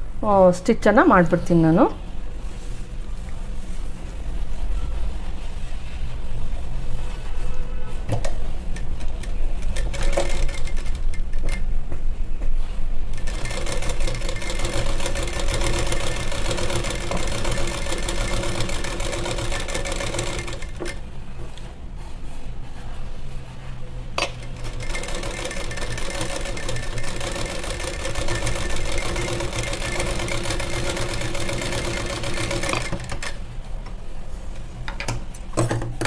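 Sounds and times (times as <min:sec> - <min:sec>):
sewing machine stitching: 0:08.9 - 0:11.6, 0:13.1 - 0:21.0, 0:24.2 - 0:33.4.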